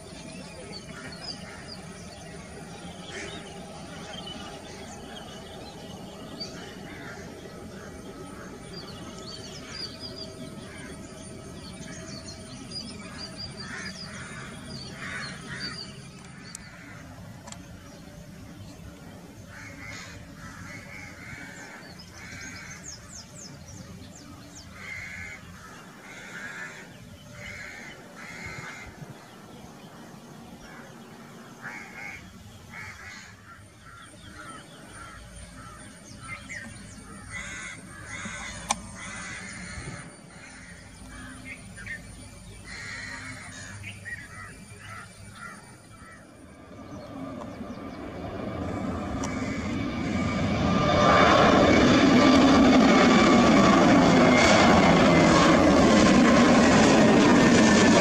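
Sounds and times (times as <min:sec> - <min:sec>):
small birds chirping: 0:00.0 - 0:56.4
distant jet engines rumbling: 0:00.0 - 0:58.0
crows cawing: 0:03.0 - 0:05.2, 0:06.4 - 0:08.9, 0:10.6 - 0:11.2, 0:13.1 - 0:17.1, 0:19.5 - 0:23.2, 0:24.8 - 0:29.0, 0:31.6 - 0:36.6, 0:37.2 - 0:41.6, 0:42.7 - 0:46.4, 0:49.1 - 0:50.2.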